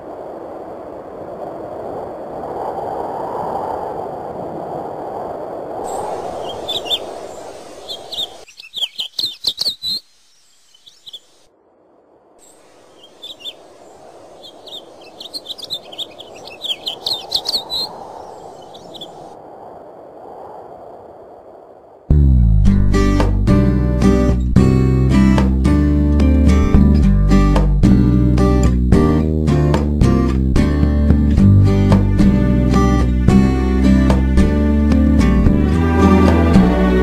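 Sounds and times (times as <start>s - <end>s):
steady rushing noise: 0.0s - 9.4s, 10.0s - 22.2s
small birds chirping: 5.9s - 11.5s, 12.4s - 19.4s.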